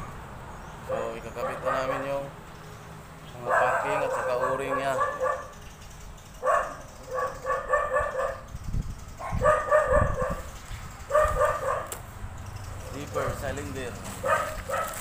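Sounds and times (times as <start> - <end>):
dog barking: 0.9 - 2.2, 3.4 - 5.6, 6.4 - 8.4, 9.2 - 10.5, 11.1 - 12.0, 14.2 - 15.0.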